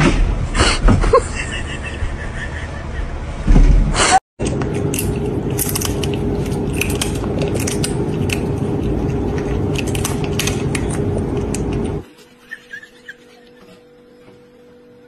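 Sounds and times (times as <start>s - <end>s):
faint hum: 0.2s - 15.0s
seed shells cracking: 4.8s - 11.9s.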